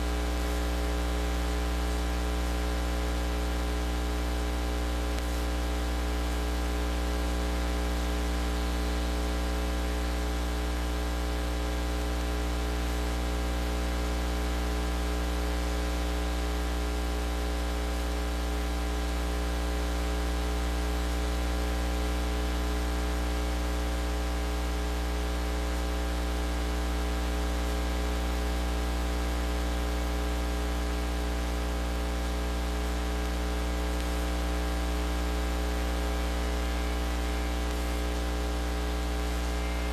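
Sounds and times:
electrical mains hum: 0.0 - 13.7, 29.9 - 39.9
constant hiss: 33.9 - 39.9.

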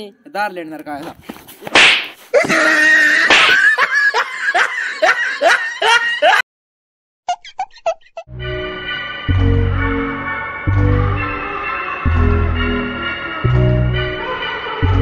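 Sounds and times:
person laughing: 2.3 - 6.4, 7.3 - 8.3.

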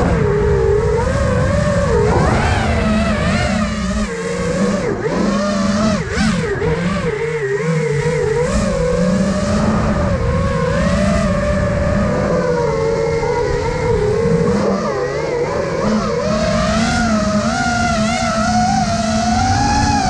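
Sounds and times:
drone motors whining: 0.0 - 20.0.

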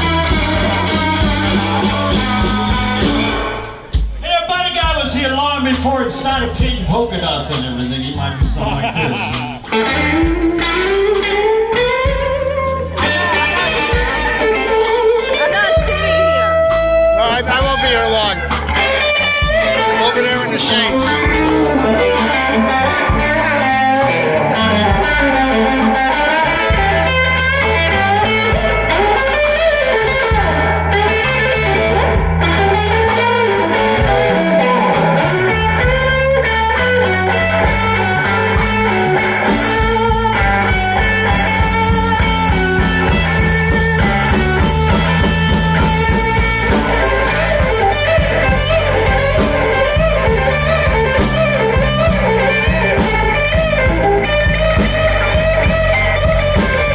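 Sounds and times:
bass guitar: 0.0 - 56.9
drum kit beat: 0.0 - 56.9
electric guitar lead lines: 0.0 - 56.9.

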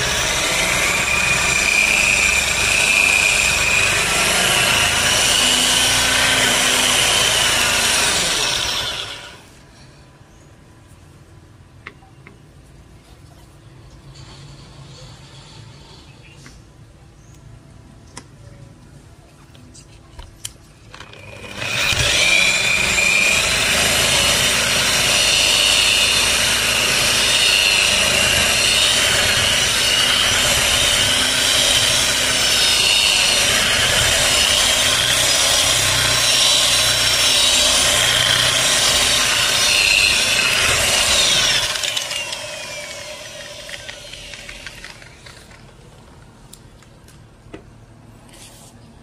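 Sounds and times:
polisher motor whine: 21.2 - 45.6.

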